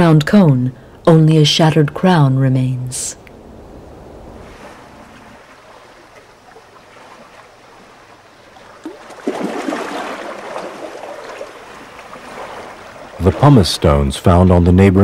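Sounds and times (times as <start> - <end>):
water lapping around stones: 4.4 - 13.9.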